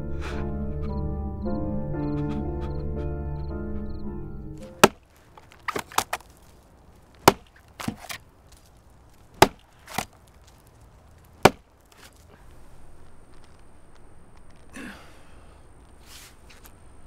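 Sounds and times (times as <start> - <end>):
axe chopping log: 4.6 - 6.4, 7.1 - 8.6, 9.3 - 10.2, 11.4 - 12.2.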